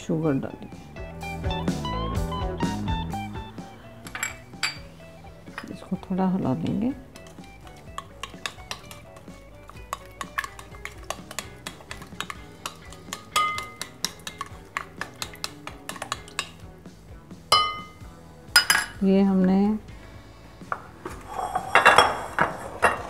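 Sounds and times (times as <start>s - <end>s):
utensil scraping glass bowl: 7.2s - 16.5s, 21.1s - 23.0s.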